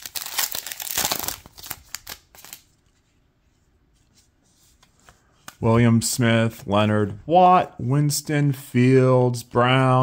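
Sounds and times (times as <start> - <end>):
foil card pack crinkling: 0.0 - 2.7.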